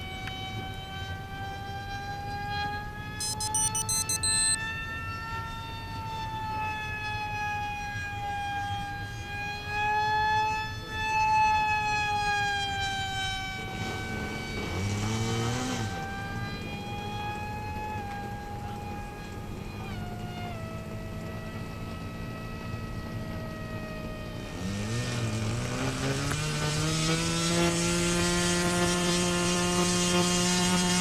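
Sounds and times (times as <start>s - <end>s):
model jet motor whine: 8.6s - 31.0s.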